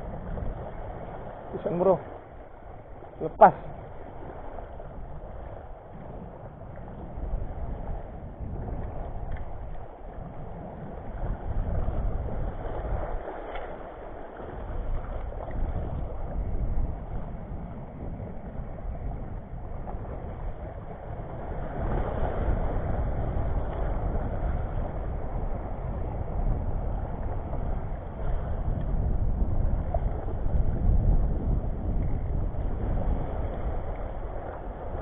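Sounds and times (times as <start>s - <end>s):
wind buffeting microphone: 0.0s - 35.0s
small waves washing over rocks: 8.6s - 16.6s.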